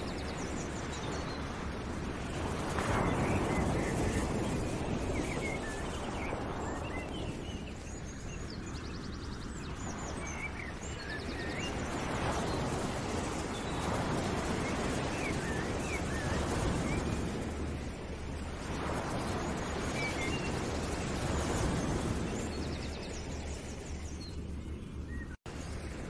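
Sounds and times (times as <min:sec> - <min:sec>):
steady rushing noise: 0:00.0 - 0:26.0.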